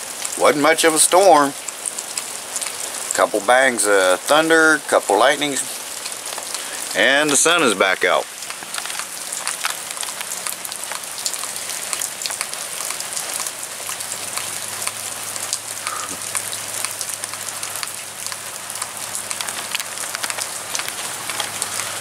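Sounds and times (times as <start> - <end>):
steady rain falling: 0.0 - 22.0.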